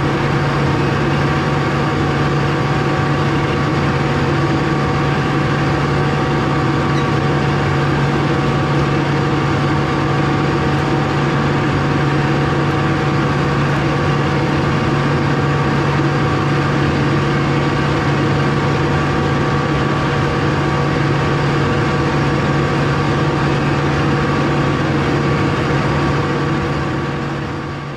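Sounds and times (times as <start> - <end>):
tractor engine running: 0.0 - 27.9.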